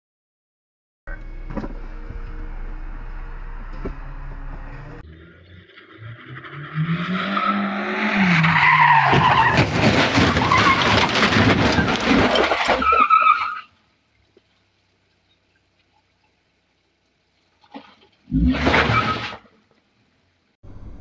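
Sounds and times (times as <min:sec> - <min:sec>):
car engine revving: 0:01.1 - 0:10.4
tyres skidding: 0:01.1 - 0:20.0
car crash crunching: 0:06.5 - 0:13.6, 0:18.3 - 0:19.6.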